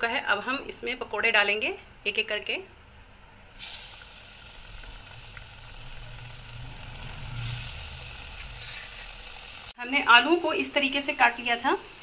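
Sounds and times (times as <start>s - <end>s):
batter sizzling in hot oil: 3.6s - 12.0s
low hum: 4.6s - 9.8s.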